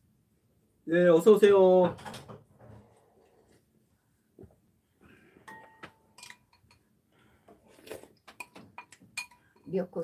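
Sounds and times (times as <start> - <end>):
metal spoon clinking ceramic bowl: 5.5 - 6.9, 8.4 - 9.8.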